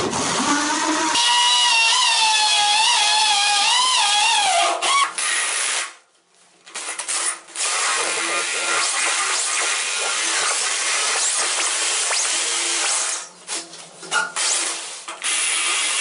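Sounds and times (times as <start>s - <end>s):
electric drill boring into tile: 14.6s - 16.0s.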